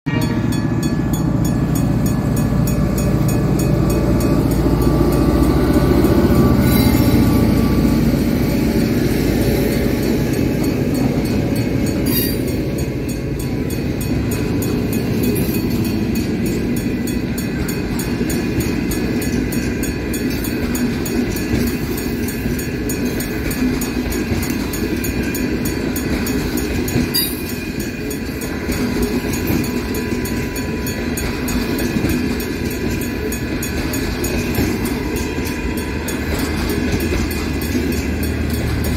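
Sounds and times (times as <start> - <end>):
train wheels rumbling on rails: 0.1 - 38.9.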